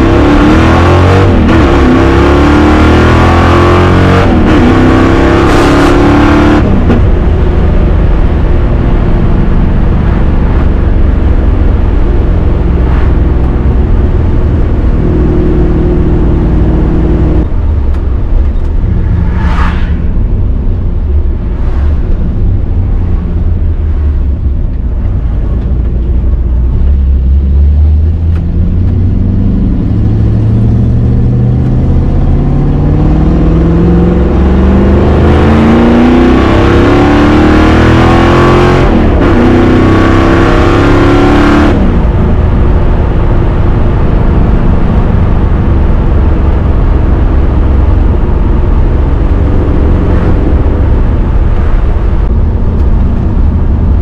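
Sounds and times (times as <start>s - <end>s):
car engine accelerating: 0.0s - 54.0s
brief whoosh: 17.8s - 23.7s.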